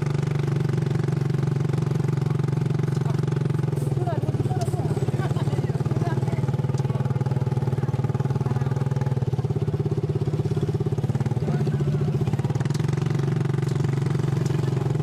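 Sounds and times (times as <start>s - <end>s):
small motorcycle engine running: 0.0s - 15.0s.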